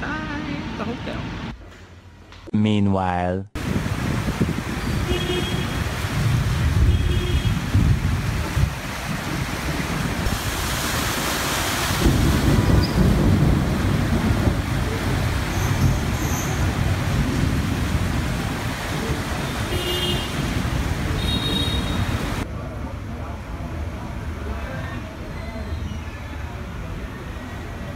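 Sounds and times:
wind buffeting microphone: 3.6s - 22.4s
rush of water: 3.6s - 25.2s
steady hiss of rain: 3.6s - 25.3s
cars driving through water: 3.6s - 27.9s.

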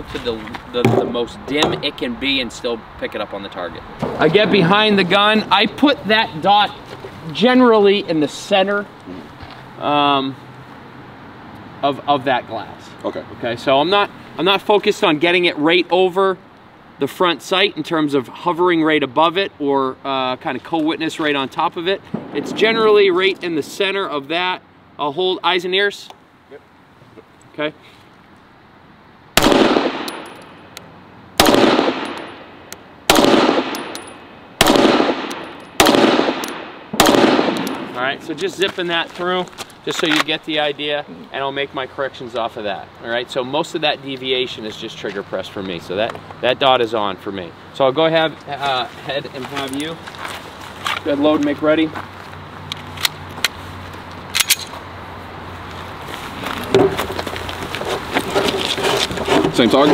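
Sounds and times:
pistol shots with echo: 29.4s - 30.4s, 31.4s - 32.5s, 33.1s - 38.0s
handgun metallic clicks: 29.8s - 30.9s, 31.8s - 32.8s, 33.4s - 37.9s, 54.3s - 54.8s.

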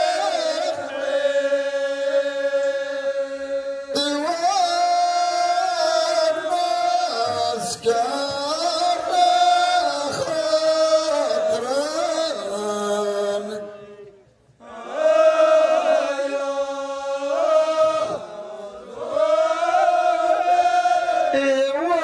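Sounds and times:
men singing in unison: 0.0s - 13.9s, 14.6s - 21.4s
man singing into a microphone: 0.0s - 14.2s.

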